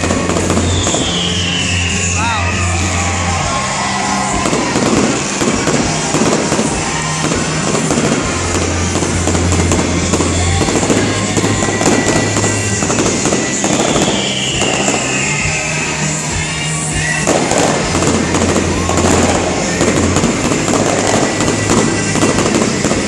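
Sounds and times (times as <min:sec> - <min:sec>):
fireworks crackling and popping: 0:00.0 - 0:23.0
music playing: 0:00.0 - 0:23.0.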